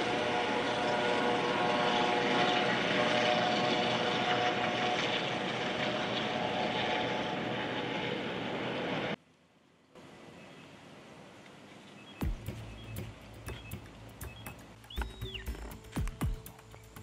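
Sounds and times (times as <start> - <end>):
helicopter rotor noise: 0.0 - 9.2
helicopter turbine whine: 0.0 - 9.2, 12.2 - 17.0.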